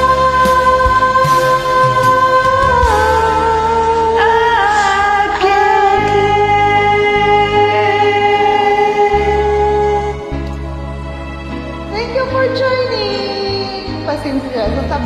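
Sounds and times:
woman singing a long note: 0.0s - 10.2s
backing track with low bass: 0.0s - 15.0s.

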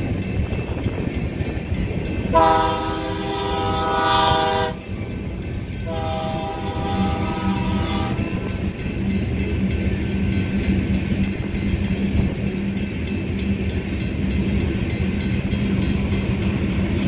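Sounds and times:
freight train rumbling past: 0.0s - 17.0s
train air horn blasts: 2.3s - 4.8s, 5.8s - 8.4s.

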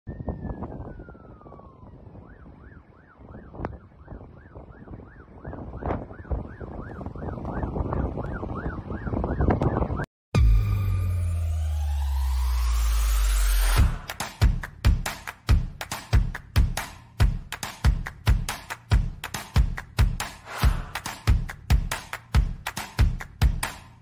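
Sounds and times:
wind rumbling on microphone: 0.1s - 10.1s
emergency vehicle siren: 0.1s - 14.1s.

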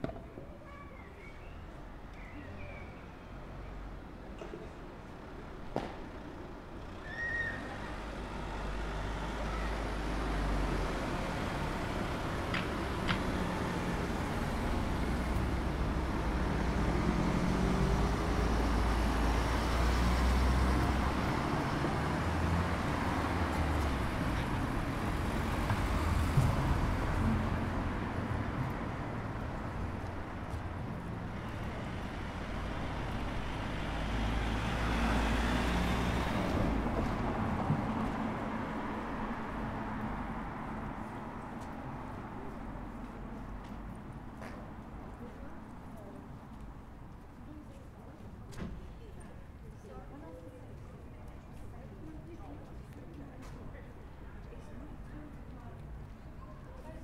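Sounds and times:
cars driving past: 5.8s - 45.1s.

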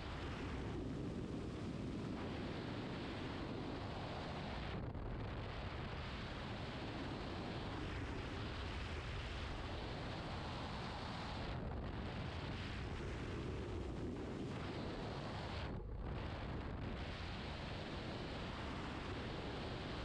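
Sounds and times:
aircraft engine: 0.0s - 20.0s
wind rushing on microphone: 0.0s - 20.0s.

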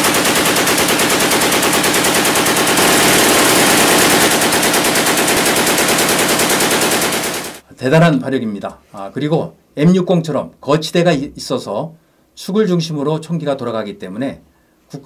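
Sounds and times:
machine gun automatic fire: 0.0s - 7.6s.

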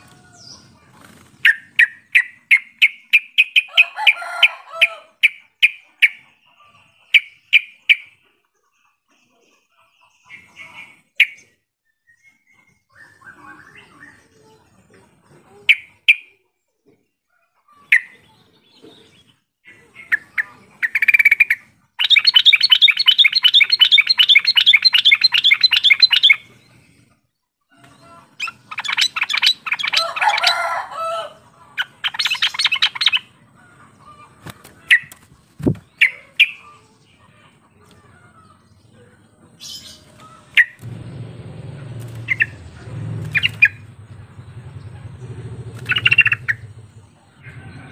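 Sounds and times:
bird chirping and chattering: 0.0s - 4.1s, 5.2s - 11.6s, 15.5s - 16.4s, 17.8s - 27.1s, 27.8s - 30.6s, 31.6s - 33.4s, 34.0s - 38.9s, 39.6s - 40.9s, 42.0s - 47.2s.

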